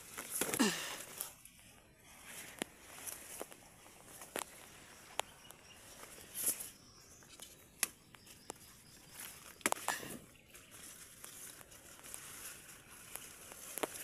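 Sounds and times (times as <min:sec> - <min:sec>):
leaves and stalks rustling: 0:00.0 - 0:14.0
stalks snapping: 0:00.1 - 0:01.2, 0:07.3 - 0:08.6, 0:09.5 - 0:10.2.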